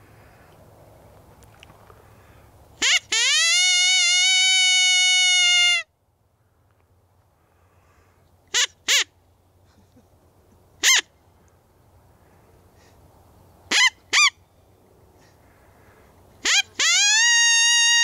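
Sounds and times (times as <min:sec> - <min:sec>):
faint outdoor background: 0:00.0 - 0:18.0
coyote call yips: 0:10.8 - 0:11.1, 0:13.7 - 0:14.4, 0:16.4 - 0:18.0.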